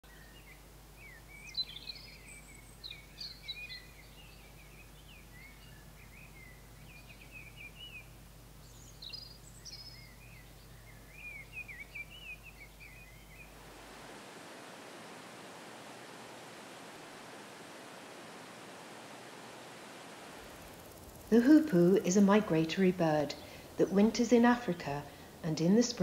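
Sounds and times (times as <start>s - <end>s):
faint low hum: 0.0s - 26.0s
songbirds chirping: 0.0s - 26.0s
river running over stones: 13.5s - 21.4s.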